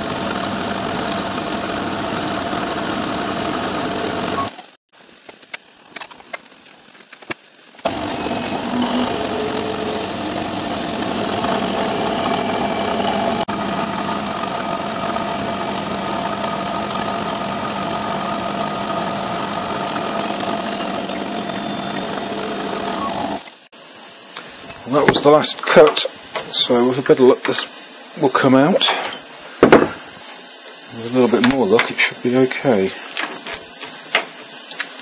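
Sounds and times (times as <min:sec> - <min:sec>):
milling machine cutting metal: 0:00.0 - 0:04.7, 0:07.8 - 0:23.7.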